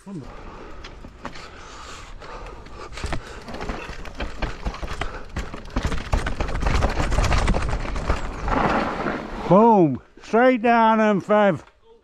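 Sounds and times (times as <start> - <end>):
bike knocks and rattles: 2.6 - 8.9.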